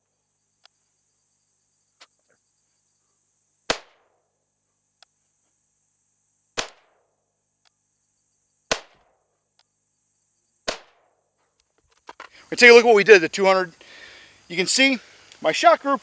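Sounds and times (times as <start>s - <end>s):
rifle shots: 3.7s - 4.1s, 6.6s - 7.0s, 8.7s - 9.2s, 10.6s - 11.1s.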